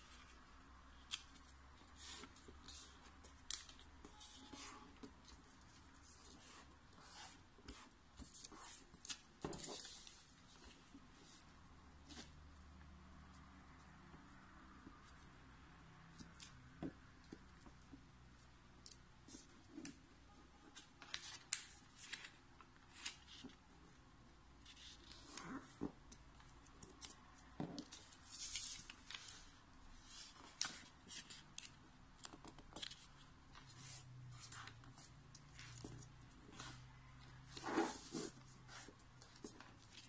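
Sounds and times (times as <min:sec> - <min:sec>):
paper rustling as it is folded: 0:00.0 - 0:12.4, 0:20.6 - 0:23.7, 0:24.6 - 0:40.0.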